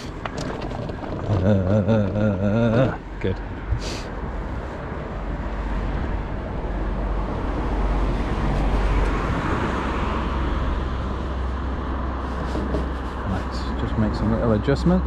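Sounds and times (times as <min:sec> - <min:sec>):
road traffic passing: 0:00.0 - 0:15.0
wind and tyre noise: 0:00.0 - 0:15.0.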